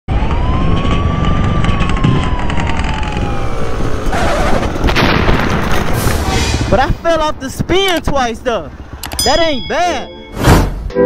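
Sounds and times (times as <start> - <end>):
siren wailing: 0.1 - 6.9
wind rumble: 0.1 - 10.0
dirt bike engine: 0.2 - 10.9.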